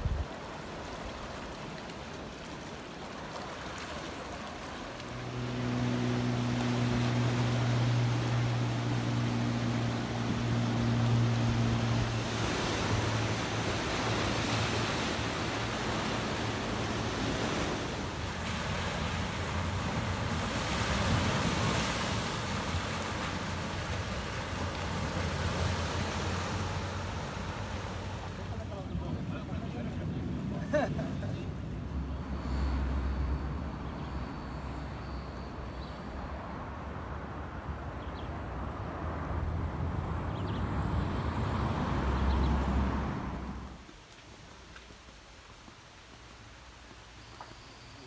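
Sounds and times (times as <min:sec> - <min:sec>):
surf washing over rocks: 0:00.0 - 0:32.0
motorboat engine humming: 0:02.2 - 0:44.0.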